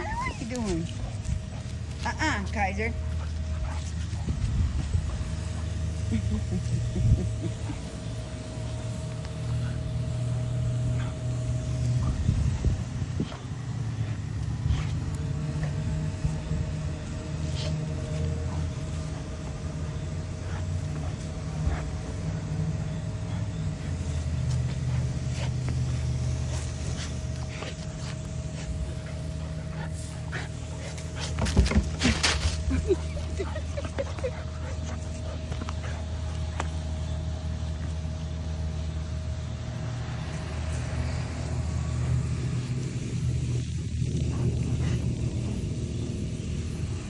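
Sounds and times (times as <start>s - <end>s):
dogs wrestling clicks and scuffs: 0.0s - 5.9s, 13.2s - 16.3s, 23.9s - 38.0s
low mechanical hum: 0.0s - 47.0s
thin constant whine: 0.0s - 47.0s.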